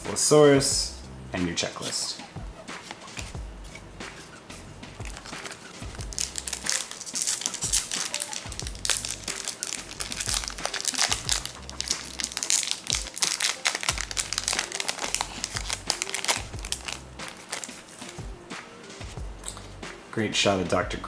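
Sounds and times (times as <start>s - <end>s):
foil wrapper tearing and crinkling: 5.0s - 18.2s.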